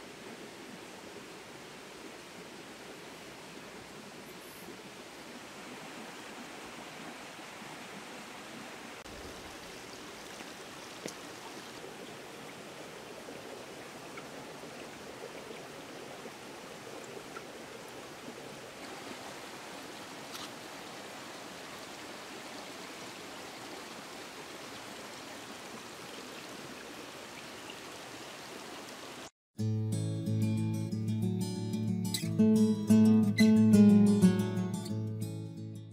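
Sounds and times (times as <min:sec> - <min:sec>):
stream trickling among stones: 0:09.0 - 0:29.3.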